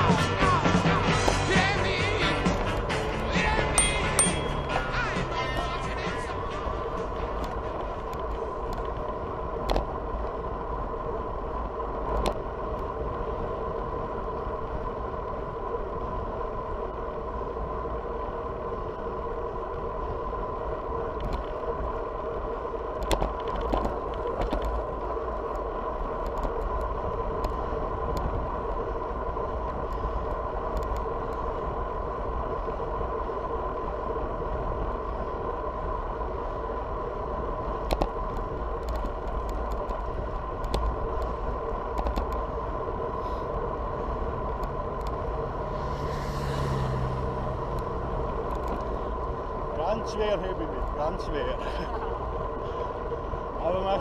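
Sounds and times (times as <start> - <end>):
low wind rumble: 0.0 - 54.0
steady hum: 0.0 - 54.0
sharp clicks and knocks: 41.9 - 42.4.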